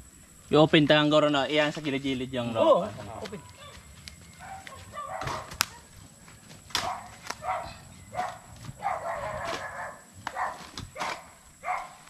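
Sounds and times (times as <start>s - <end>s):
farm animal calls: 2.5s - 12.0s.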